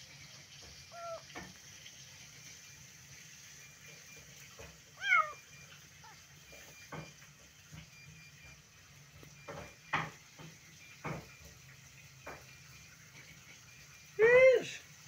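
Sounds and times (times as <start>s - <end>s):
cat meowing: 0.9s - 1.3s, 5.0s - 6.2s.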